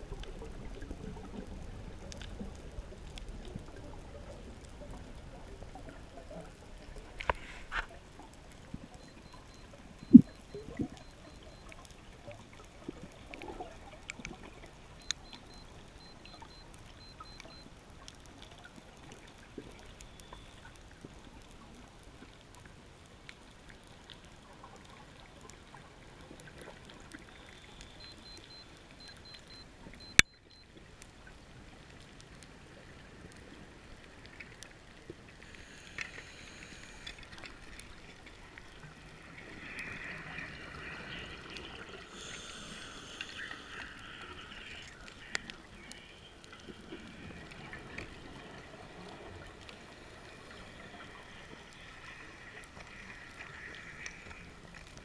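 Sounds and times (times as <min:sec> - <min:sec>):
faint clicks: 0:00.1 - 0:55.0
underwater hiss: 0:35.4 - 0:37.4, 0:42.0 - 0:45.1.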